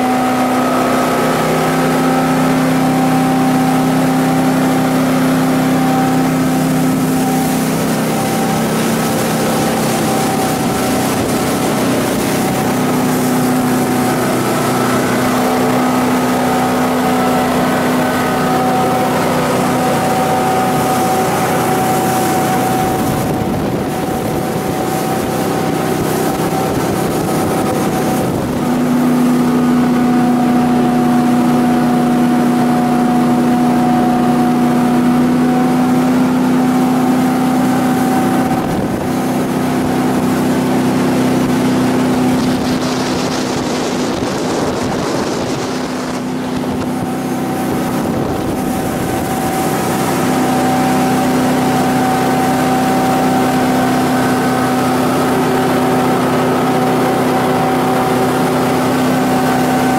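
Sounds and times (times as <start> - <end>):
boat engine droning: 0.0 - 59.9
rushing water: 0.0 - 59.9.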